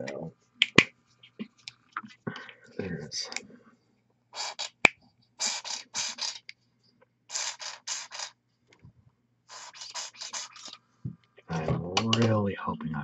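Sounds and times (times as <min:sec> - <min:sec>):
paint bottle being shaken: 0:05.4 - 0:06.4, 0:07.3 - 0:08.4, 0:09.5 - 0:10.8.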